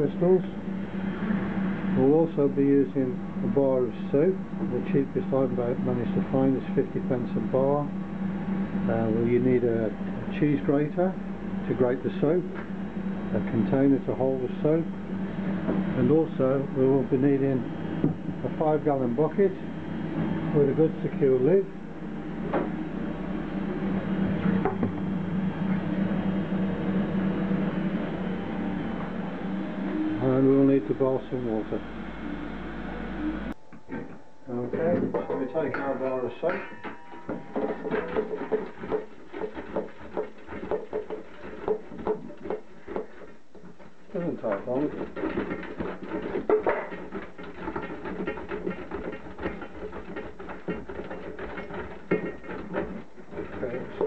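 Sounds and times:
steady low hum: 0:00.0 - 0:54.0
soap scraping on metal grater: 0:37.6 - 0:54.0.

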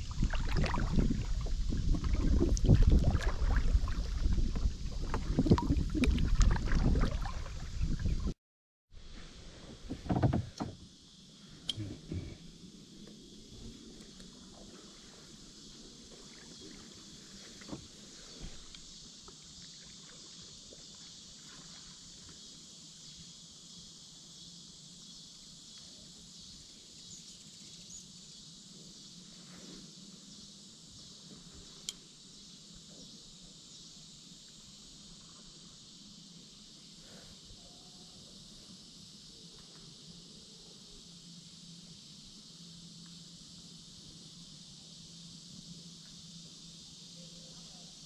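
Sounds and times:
paddle strokes in water: 0:00.0 - 0:08.3, 0:16.0 - 0:22.4
steady high hiss: 0:09.0 - 0:48.0.

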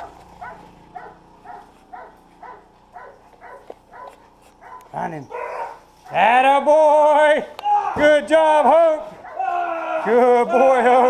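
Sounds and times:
dog whining: 0:00.4 - 0:05.9.

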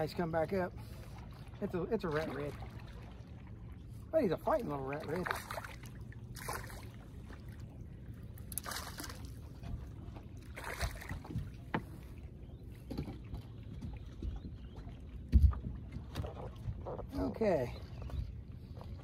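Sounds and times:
water splashing: 0:00.0 - 0:12.3
wind and water rumble: 0:00.0 - 0:19.0.

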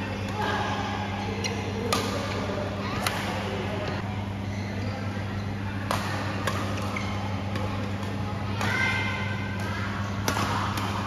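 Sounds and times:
steady low hum: 0:00.0 - 0:11.0
shoe squeaking on court floor: 0:04.3 - 0:05.6.

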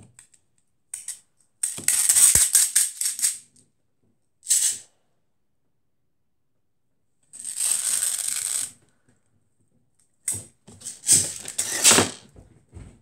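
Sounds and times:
metal pins sliding and rattling: 0:10.8 - 0:12.2.

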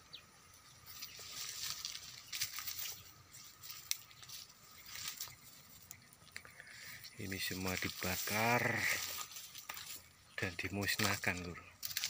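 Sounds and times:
dry leaves rustling and crackling: 0:00.8 - 0:12.0
twig snapping: 0:03.6 - 0:06.6, 0:11.8 - 0:12.0.

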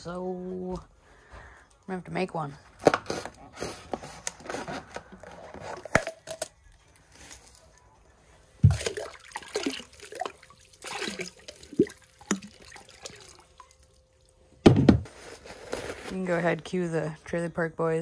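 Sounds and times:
knife cutting plastic bottle: 0:02.8 - 0:06.5
water splashing and sloshing: 0:08.6 - 0:15.1
thump: 0:14.6 - 0:15.1.

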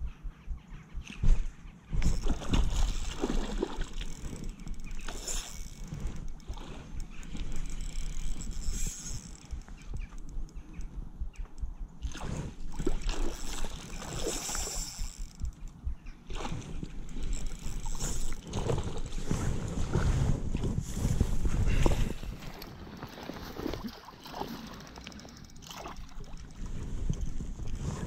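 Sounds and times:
wind buffeting microphone: 0:00.0 - 0:24.0, 0:26.0 - 0:28.0
fish thrashing and splashing water: 0:02.0 - 0:05.9, 0:12.7 - 0:15.0, 0:22.5 - 0:26.5.

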